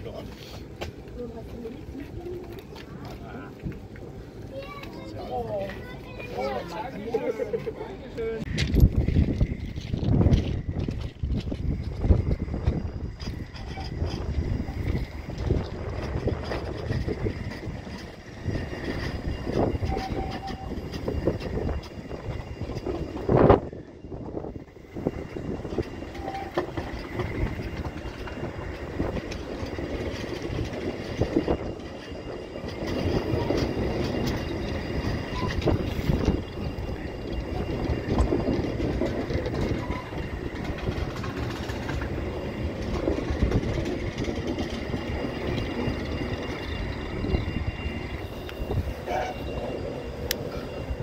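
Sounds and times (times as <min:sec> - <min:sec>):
rail clicks: 0:00.0 - 0:51.0
tram wheels rumbling on rails: 0:00.0 - 0:51.0.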